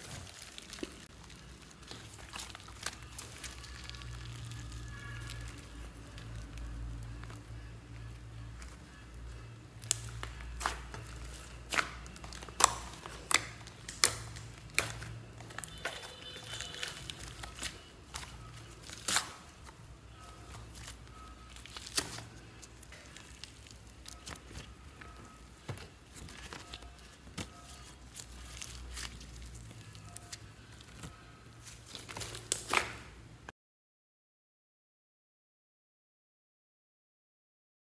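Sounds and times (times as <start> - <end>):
slime squished by hand: 8.0 - 19.7, 20.5 - 33.2
slime pops and crackles: 9.8 - 15.9.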